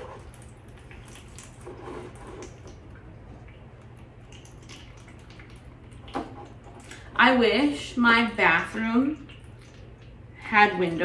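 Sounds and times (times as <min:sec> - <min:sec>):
water pouring and trickling: 0:00.0 - 0:07.1, 0:08.6 - 0:10.5
water dripping into saucer: 0:00.1 - 0:07.2, 0:08.4 - 0:10.5.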